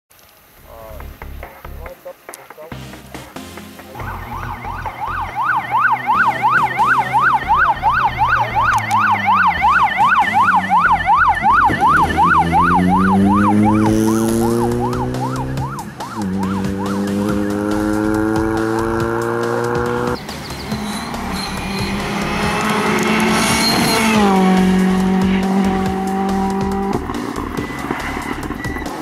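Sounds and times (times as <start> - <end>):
car engine revving: 2.7 - 29.0
electronic siren yelping: 3.9 - 19.2, 19.8 - 27.2.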